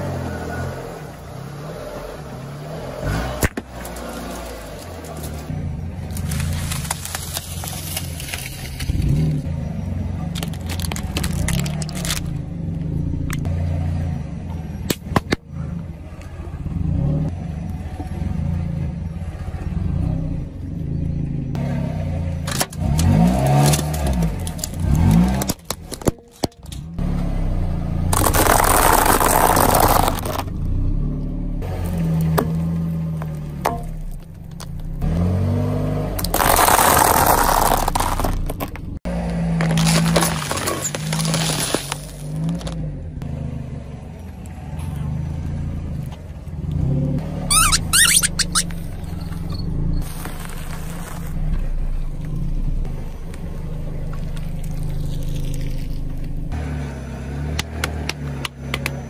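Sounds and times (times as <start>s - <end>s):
car engine running low: 0.0s - 59.0s
tyre crushing plastic straws: 6.1s - 9.1s, 10.4s - 12.4s, 28.1s - 30.5s, 36.2s - 38.8s, 39.6s - 42.8s, 47.5s - 48.7s.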